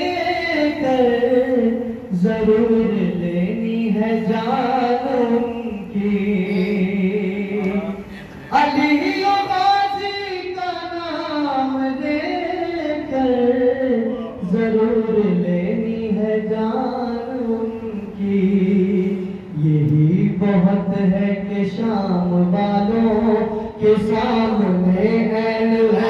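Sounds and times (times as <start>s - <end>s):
man chanting into a microphone: 0.0s - 26.0s.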